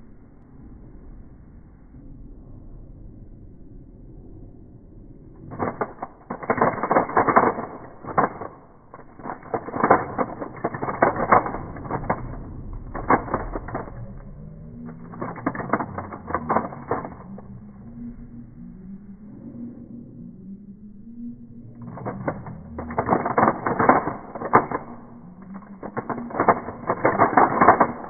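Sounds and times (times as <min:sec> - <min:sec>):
puzzle cube clicking and rattling: 0:05.5 - 0:17.4, 0:21.8 - 0:28.0.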